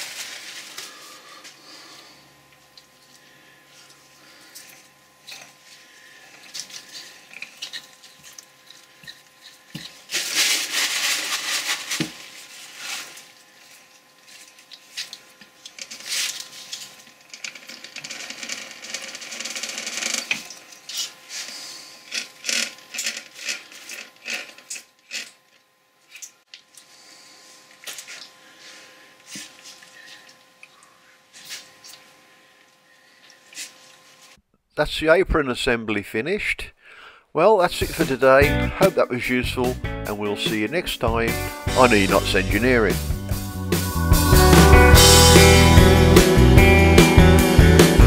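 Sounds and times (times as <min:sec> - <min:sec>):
paper rustling: 0:00.0 - 0:01.1, 0:10.0 - 0:13.4.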